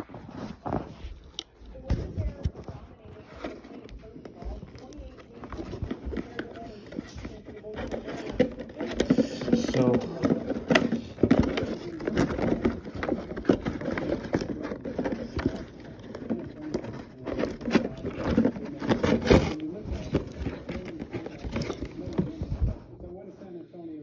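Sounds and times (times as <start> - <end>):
faint television voice: 0.0 - 24.0
cardboard packaging tearing: 9.7 - 22.4.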